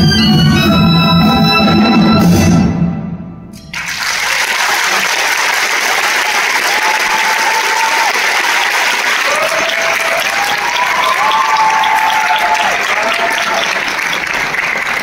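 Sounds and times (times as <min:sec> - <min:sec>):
orchestral music: 0:00.0 - 0:04.2
audience applauding: 0:03.7 - 0:15.0.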